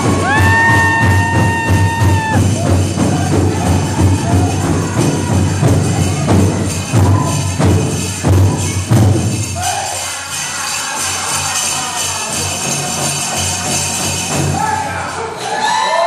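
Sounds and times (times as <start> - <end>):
drum heavy steady beat: 0.0 - 14.9
leg bells jingling: 0.0 - 15.3.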